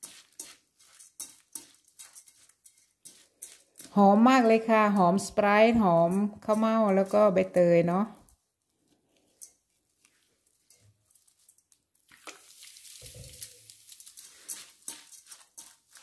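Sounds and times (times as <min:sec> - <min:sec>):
rustling of damp rice in a bowl: 0:00.0 - 0:04.7, 0:08.3 - 0:16.0.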